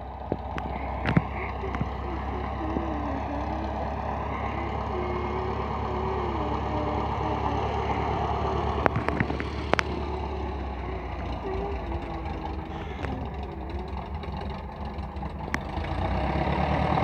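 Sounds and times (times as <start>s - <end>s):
light aircraft engine running: 0.0s - 17.0s
sharp clicks: 0.2s - 3.8s, 8.7s - 14.3s.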